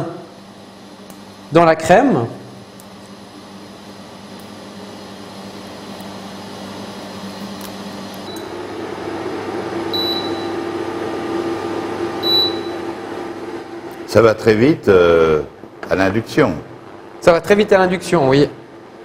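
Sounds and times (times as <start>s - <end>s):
induction hob humming: 0.0s - 19.0s
short high beeps: 10.0s - 10.6s, 12.2s - 12.8s.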